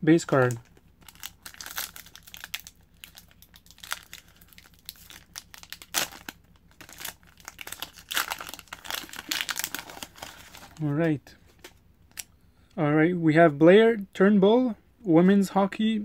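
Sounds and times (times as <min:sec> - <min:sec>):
foil wrapper crinkling and tearing: 0:00.2 - 0:10.8.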